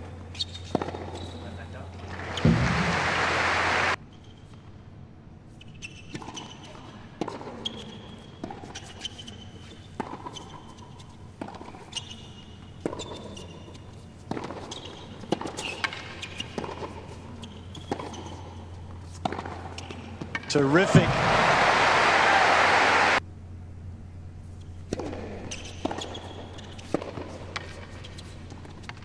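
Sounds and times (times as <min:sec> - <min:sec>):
tennis ball bouncing: 0:00.4 - 0:01.3, 0:02.0 - 0:03.4, 0:10.0 - 0:12.2, 0:12.8 - 0:22.0, 0:24.9 - 0:29.0
racquet striking tennis ball: 0:02.0 - 0:03.9, 0:19.2 - 0:22.3.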